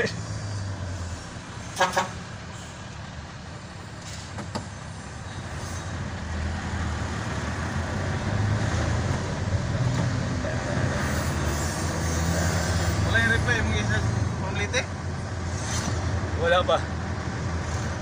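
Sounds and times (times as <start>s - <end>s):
vehicle engine drone: 0.0s - 18.0s.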